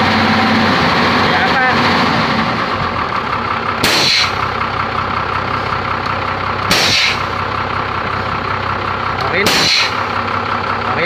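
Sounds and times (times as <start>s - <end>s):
truck engine idling: 0.0s - 11.0s
air brake hissing: 3.8s - 4.5s, 6.7s - 7.4s, 9.5s - 10.1s.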